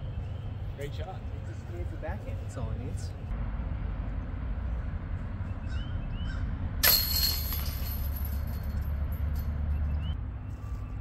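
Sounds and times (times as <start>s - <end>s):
disc hitting metal basket chains: 6.8s - 9.7s.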